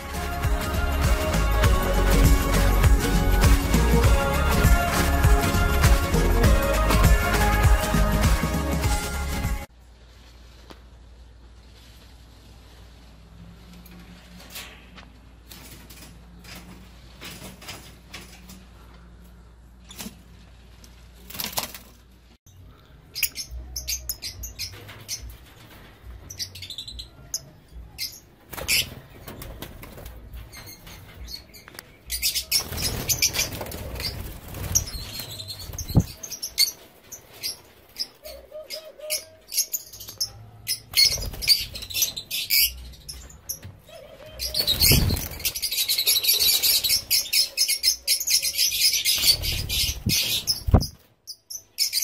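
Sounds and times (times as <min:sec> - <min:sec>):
wings flapping: 0:19.9 - 0:22.1, 0:28.4 - 0:31.2, 0:32.4 - 0:38.3, 0:40.9 - 0:42.3, 0:43.9 - 0:47.2, 0:49.0 - 0:51.0
lovebirds chirping: 0:22.5 - 0:52.0.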